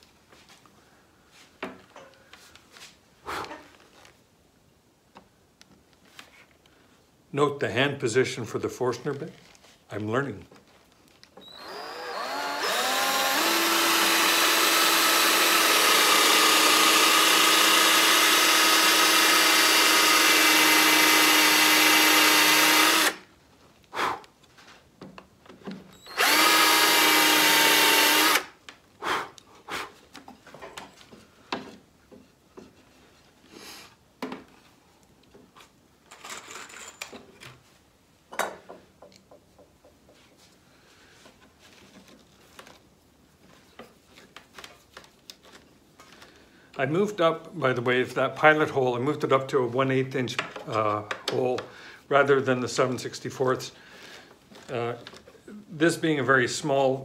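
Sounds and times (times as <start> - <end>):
cordless drill boring into wood: 11.4 - 23.2, 26.0 - 28.6.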